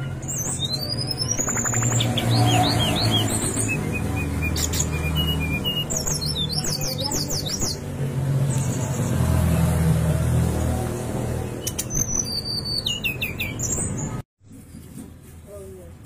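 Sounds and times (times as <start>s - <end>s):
bird singing high whistles: 0.2s - 7.8s, 11.6s - 14.2s.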